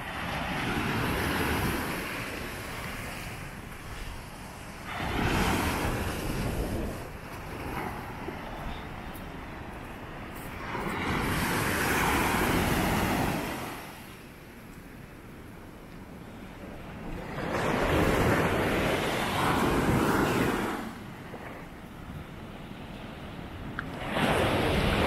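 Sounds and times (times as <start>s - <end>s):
waves breaking on sandy beach: 0.0s - 25.0s.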